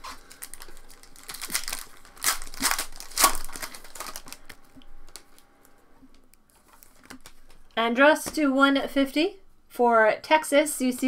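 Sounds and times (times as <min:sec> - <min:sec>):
foil wrapper tearing and crinkling: 0:00.0 - 0:05.4, 0:06.7 - 0:07.6.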